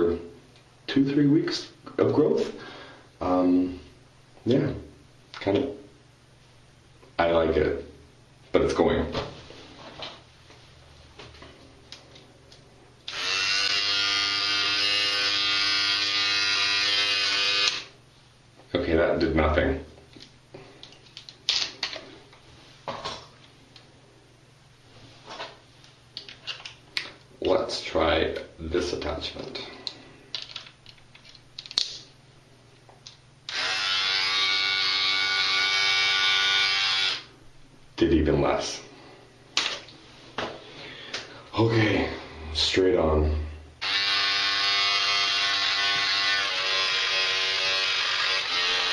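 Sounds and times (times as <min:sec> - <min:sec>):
electric beard trimmer buzzing: 0:13.1 - 0:17.9, 0:33.5 - 0:37.3, 0:43.8 - 0:48.9.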